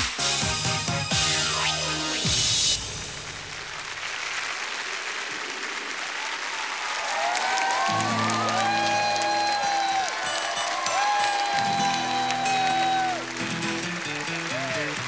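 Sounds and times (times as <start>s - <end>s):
studio audience applauding: 3.1s - 15.0s.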